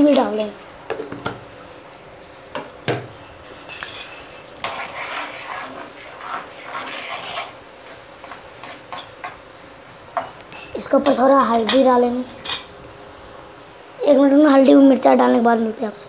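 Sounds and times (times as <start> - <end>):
steel utensils clinking: 3.2 - 4.4
spoon scraping in a pan: 3.2 - 9.4.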